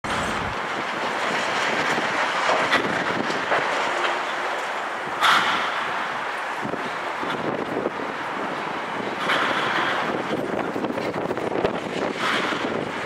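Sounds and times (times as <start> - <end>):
grinding clatter of breaking concrete: 0.0 - 4.4.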